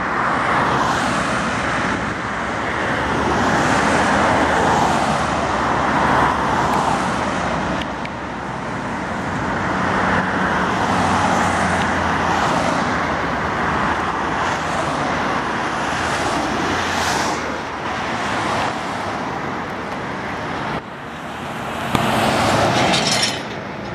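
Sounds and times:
cars and vans passing: 0.0 - 23.9
roar of tyres and engines: 0.0 - 23.9.

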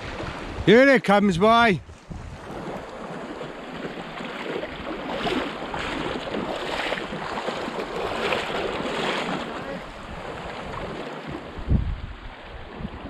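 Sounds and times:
wind on microphone: 0.0 - 0.7, 1.8 - 3.2, 4.6 - 13.0
sea waves washing onto shore: 0.0 - 13.0.

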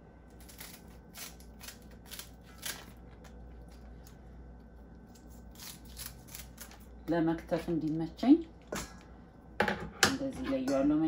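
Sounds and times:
scissors snipping leaves: 5.1 - 7.2.

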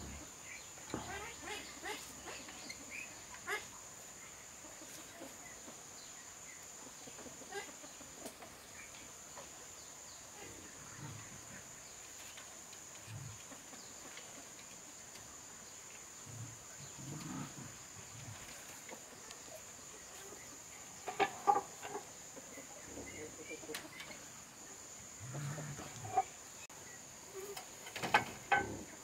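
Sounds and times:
chickens clucking: 0.0 - 29.0
high insect drone: 0.0 - 29.0
livestock low calls: 25.2 - 26.4.

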